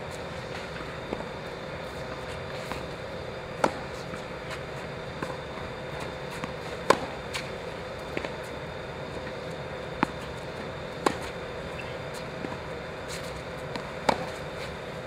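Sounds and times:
faint hum: 0:00.0 - 0:15.0
racket hitting tennis ball: 0:03.6 - 0:08.5, 0:09.2 - 0:14.8.

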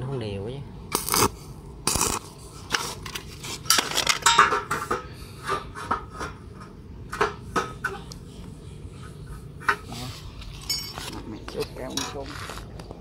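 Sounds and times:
steel bars clanking: 0:03.7 - 0:05.1.

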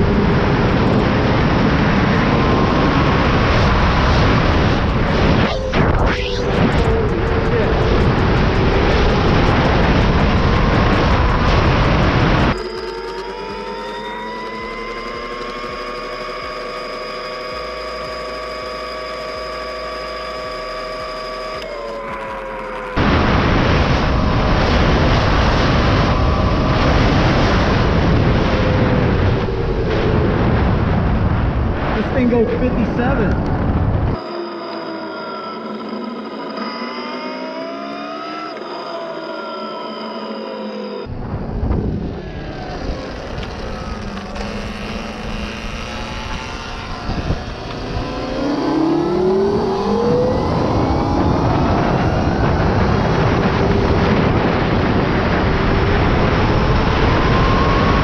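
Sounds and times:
wind rushing over microphone: 0:00.0 - 0:12.6, 0:23.0 - 0:34.2, 0:41.0 - 0:58.0
faint motor whine: 0:00.0 - 0:30.7, 0:32.1 - 0:58.0
tyres and drive noise: 0:00.0 - 0:58.0.

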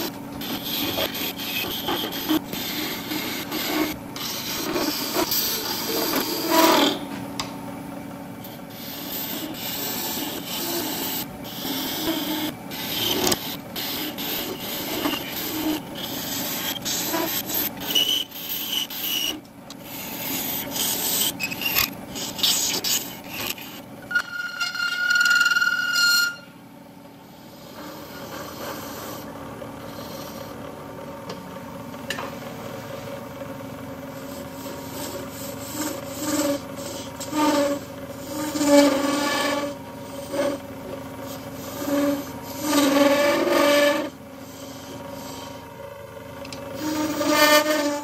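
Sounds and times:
lathe tool rasping on brass: 0:00.0 - 0:07.0, 0:08.5 - 0:26.5, 0:27.4 - 0:30.6, 0:34.0 - 0:45.7, 0:46.7 - 0:48.0
faint high squeal: 0:23.4 - 0:26.6.

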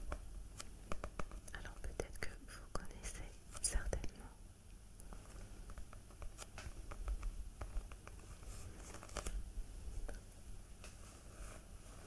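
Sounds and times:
fingers tapping on book cover: 0:00.0 - 0:02.1, 0:05.0 - 0:09.4.

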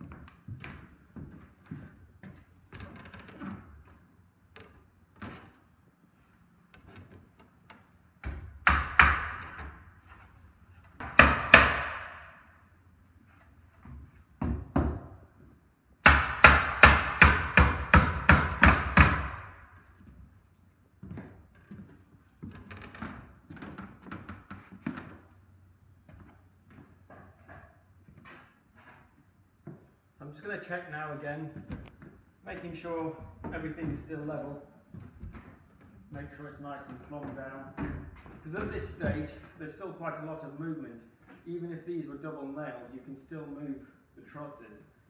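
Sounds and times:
hammer striking nails into wood: 0:08.2 - 0:09.8, 0:11.0 - 0:12.5, 0:16.0 - 0:19.7.

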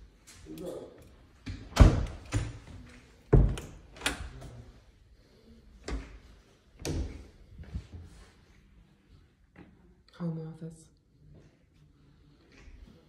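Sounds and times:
door knocks and thumps: 0:03.3 - 0:04.1.

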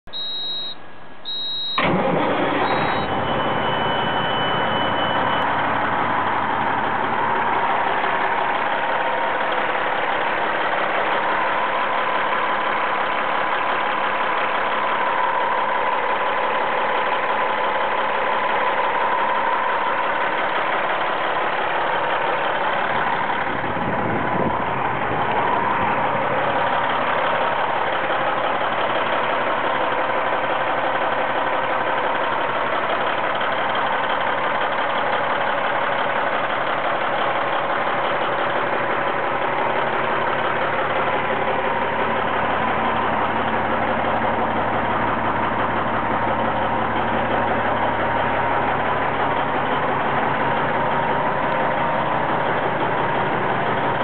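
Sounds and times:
high warning beeps: 0:00.1 - 0:01.9, 0:02.6 - 0:05.8
diesel engine starting and idling: 0:00.1 - 0:54.0.

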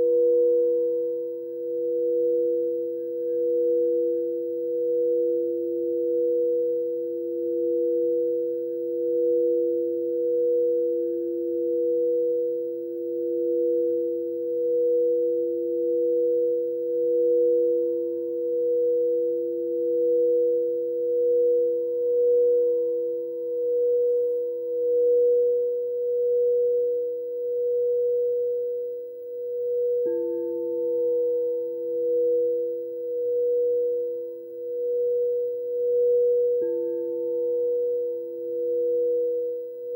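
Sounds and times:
crystal singing bowls ringing: 0:00.0 - 0:39.9.

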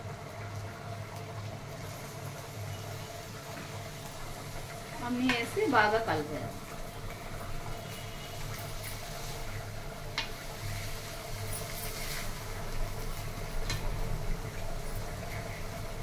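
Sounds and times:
spatula stirring and scraping pan: 0:07.1 - 0:14.0
spatula tapping pan: 0:10.1 - 0:10.4.

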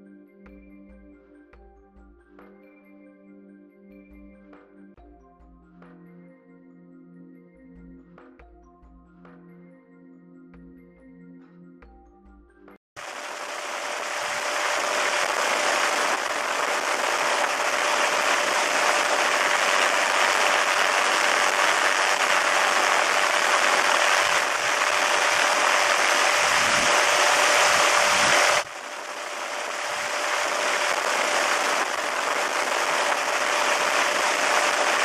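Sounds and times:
steady whine: 0:13.0 - 0:35.0.

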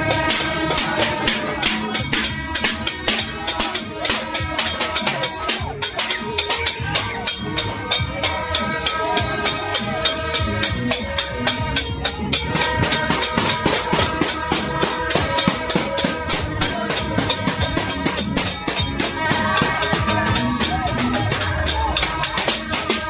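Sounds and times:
metal pans banged in fast beat: 0:00.0 - 0:23.0
party horn blowing: 0:00.0 - 0:23.0.

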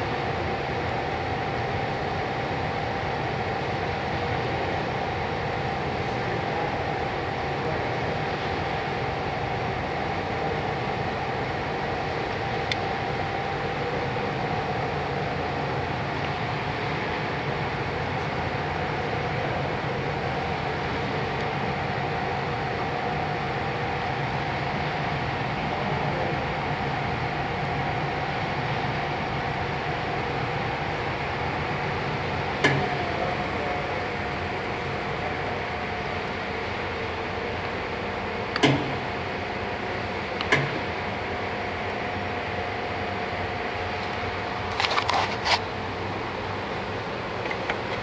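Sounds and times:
lathe humming with faint whine: 0:00.0 - 0:48.0
sharp click: 0:32.6 - 0:32.9, 0:38.5 - 0:39.0, 0:40.4 - 0:40.8.

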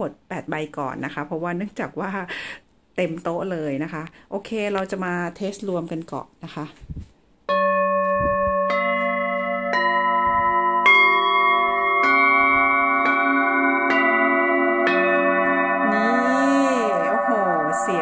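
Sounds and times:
singing bowls ringing: 0:07.5 - 0:18.0.

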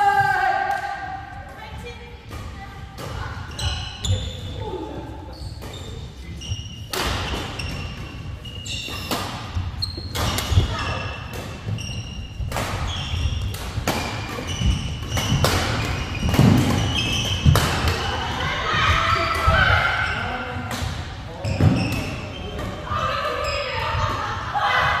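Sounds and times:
shoes squeaking on court: 0:02.5 - 0:18.2, 0:21.4 - 0:24.1
racket hitting shuttlecock: 0:06.9 - 0:08.0, 0:08.8 - 0:11.8, 0:12.4 - 0:18.4.

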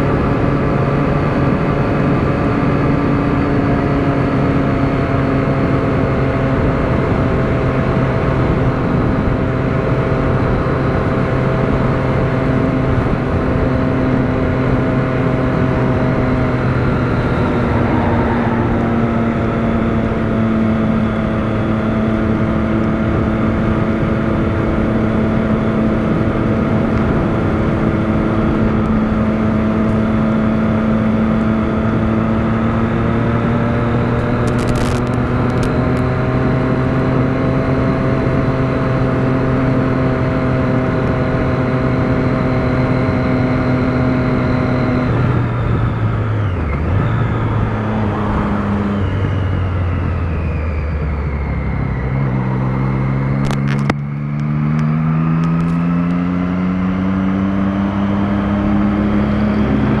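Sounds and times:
motorcycle engine running: 0:00.0 - 1:00.0
wind rush over microphone: 0:15.3 - 0:32.3.

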